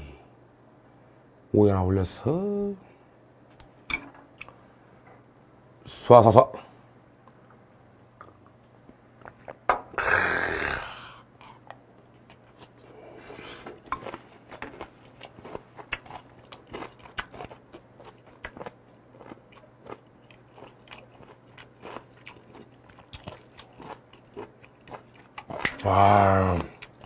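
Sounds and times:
close-up chewing crunchy food: 0:12.1 - 0:27.0.

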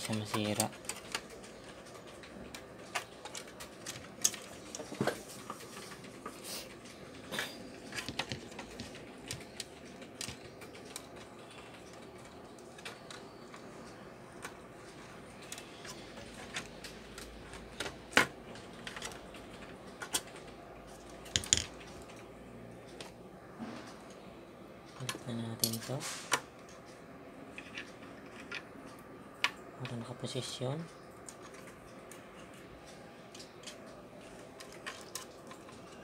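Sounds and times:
hands handling wires and plastic: 0:00.0 - 0:22.3, 0:33.3 - 0:36.0.

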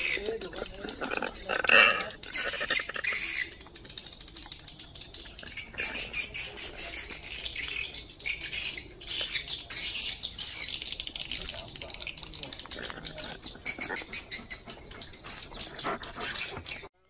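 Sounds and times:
birds calling and squawking: 0:00.0 - 0:17.0
small clicks and crackles: 0:00.4 - 0:06.1, 0:10.6 - 0:13.6.

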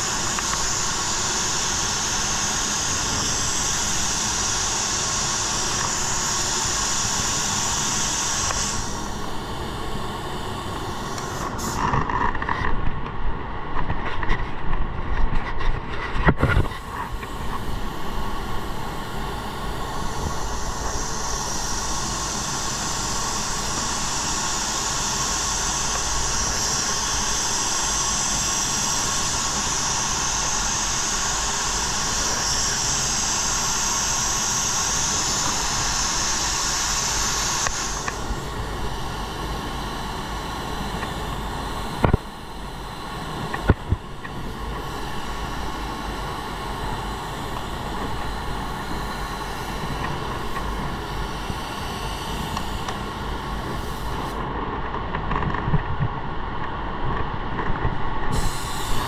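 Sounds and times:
spray gun hissing: 0:00.0 - 0:12.0, 0:16.6 - 0:54.5, 0:58.3 - 0:59.0
sharp click: 0:42.0 - 0:42.2.

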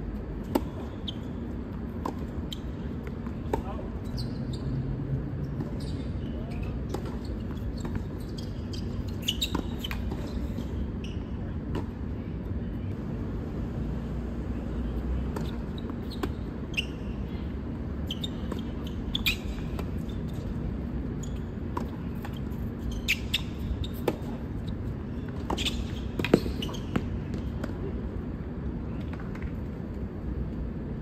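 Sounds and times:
short high squeaks: 0:07.2 - 0:11.3, 0:25.5 - 0:26.9.

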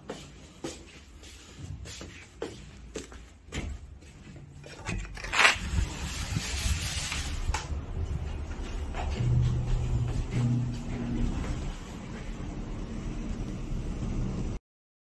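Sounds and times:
footsteps: 0:00.0 - 0:12.8
distant city traffic hum: 0:00.0 - 0:14.6
sliding glass door scraping open: 0:04.8 - 0:07.6.

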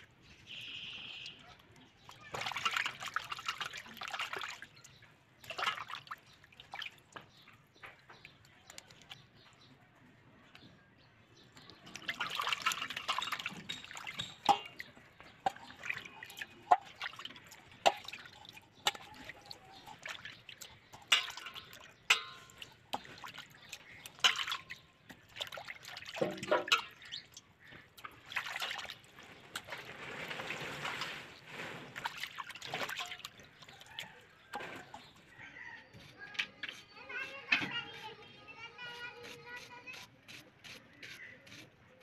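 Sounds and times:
water dripping: 0:00.0 - 0:09.7, 0:11.5 - 0:35.3
hands sloshing fish in water: 0:01.2 - 0:09.3, 0:11.6 - 0:35.1.

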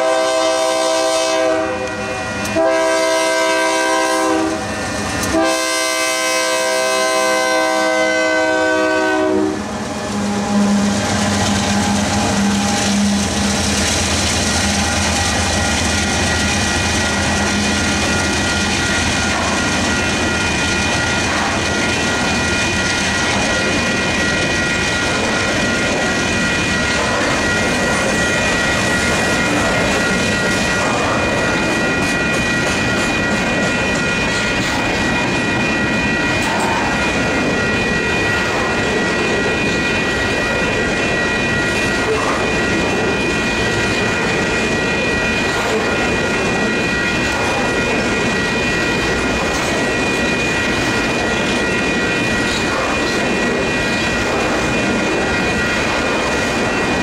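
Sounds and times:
train horn blast: 0:00.0 - 0:13.4
diesel locomotive engines humming: 0:00.0 - 0:57.0
train wheels rolling on rails: 0:00.0 - 0:57.0.

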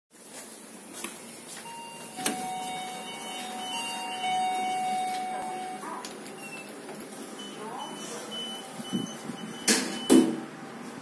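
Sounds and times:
lift machinery whine: 0:01.7 - 0:06.7.

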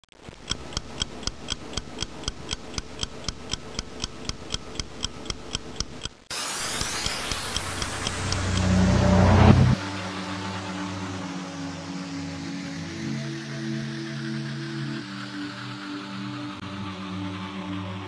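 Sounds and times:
clock ticking: 0:00.1 - 0:09.6
held low music chord: 0:07.6 - 0:14.9
low rumble: 0:07.9 - 0:09.8.

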